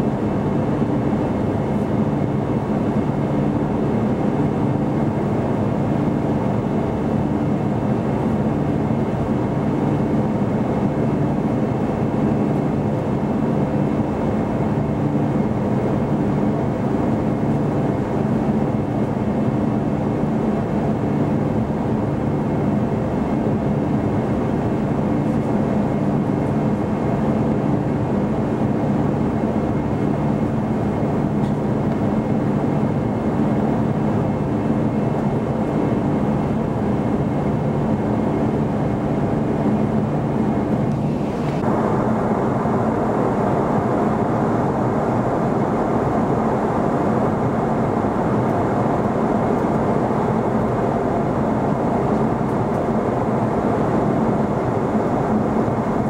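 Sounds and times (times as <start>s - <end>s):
jet engine roar: 0.0s - 56.0s
air rushing past fuselage: 40.4s - 56.0s.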